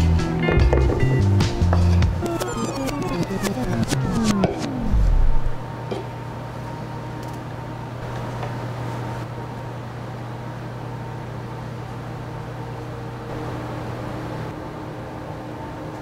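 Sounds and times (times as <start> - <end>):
low hum: 0.9 - 5.9, 13.3 - 15.5.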